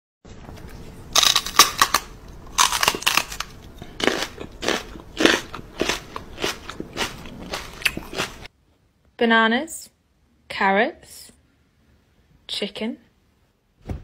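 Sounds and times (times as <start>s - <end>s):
crunchy nibbling and chewing: 0.5s - 8.5s.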